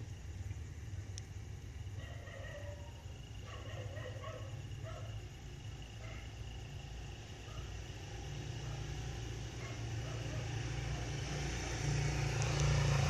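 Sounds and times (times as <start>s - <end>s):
vehicle engine rumble: 3.0s - 13.0s.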